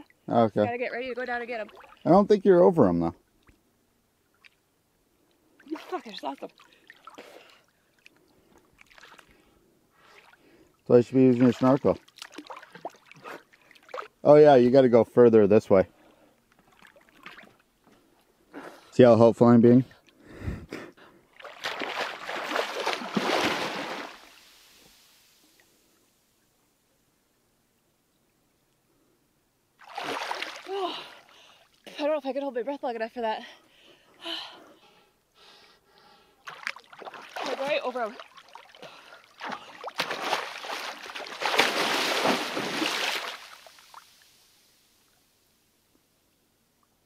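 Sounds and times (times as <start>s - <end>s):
water splashing: 1.2s - 2.2s, 5.6s - 8.1s, 8.7s - 9.3s, 11.1s - 14.2s, 21.3s - 25.5s, 29.8s - 31.4s, 36.4s - 44.4s.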